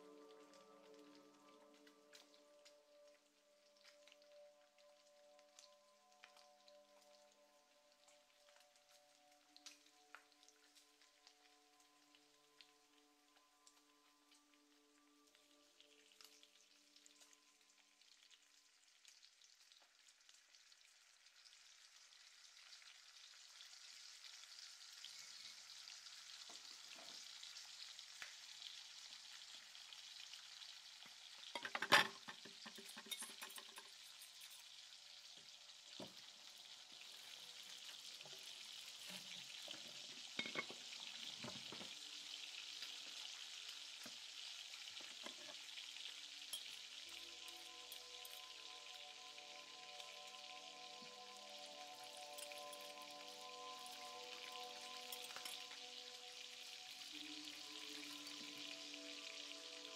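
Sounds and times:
food sizzling in a pan: 0.0 - 59.9.

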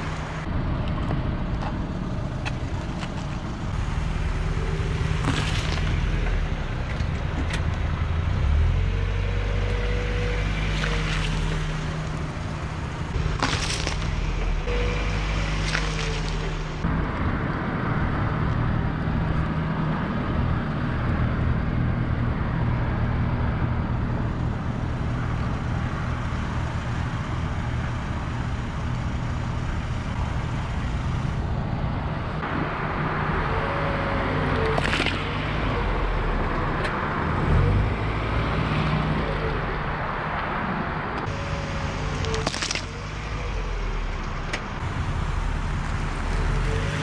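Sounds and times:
tyres rolling over asphalt: 0.0 - 21.2, 21.8 - 47.0
egg crushed under tyre: 13.2 - 14.2.

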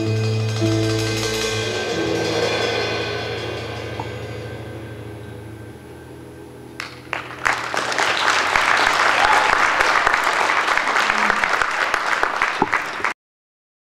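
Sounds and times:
music chord: 0.0 - 10.2
audience applause: 6.8 - 13.2.

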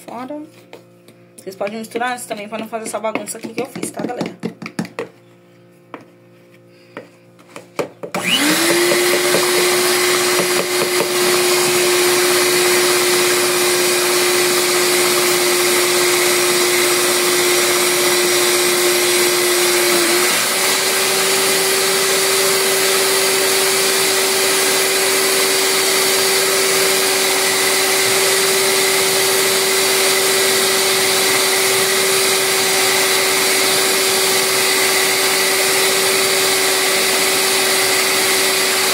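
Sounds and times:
stand mixer motor whining: 8.1 - 38.9.

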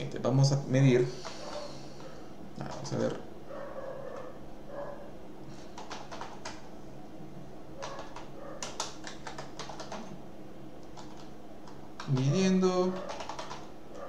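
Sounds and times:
faint low hum: 0.0 - 14.0
typing on keyboard: 5.7 - 6.6, 7.8 - 10.1, 10.8 - 13.7.

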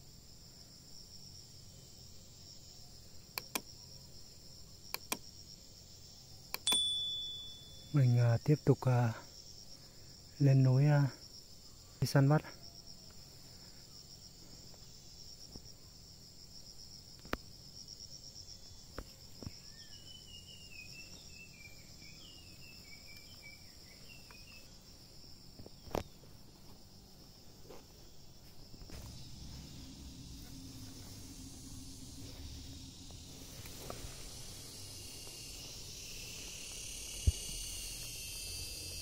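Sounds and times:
insects trilling: 0.0 - 39.0
sharp clicks: 3.4 - 3.7, 4.9 - 5.3, 6.5 - 6.9
short high chirping notes: 6.6 - 8.0.

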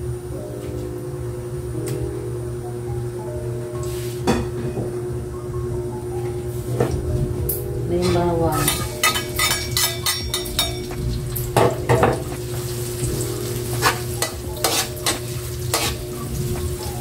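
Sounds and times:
metal spatula scraping wok: 8.0 - 11.0, 13.7 - 16.8
garlic sizzling in hot oil: 8.6 - 17.0.

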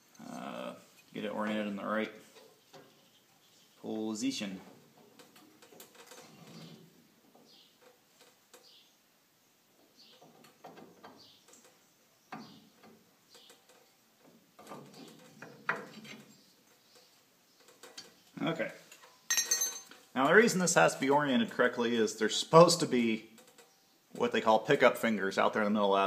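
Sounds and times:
metal clinks and scrapes: 18.8 - 20.1.

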